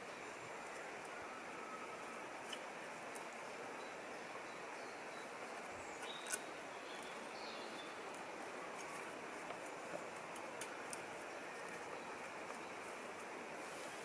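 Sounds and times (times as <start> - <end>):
woodland hiss: 0.0 - 14.0
twigs clicking: 5.6 - 7.2, 8.1 - 12.8.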